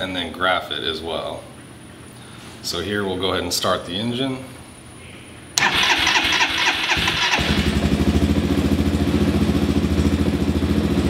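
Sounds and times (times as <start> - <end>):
electric starter cranking engine: 5.6 - 7.8
small engine idling: 5.6 - 11.0.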